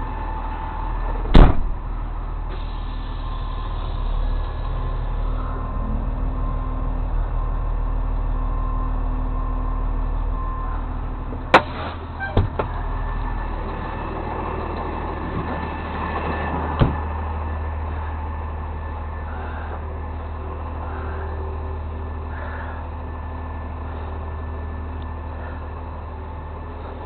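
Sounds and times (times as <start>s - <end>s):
truck engine running: 0.0s - 27.0s.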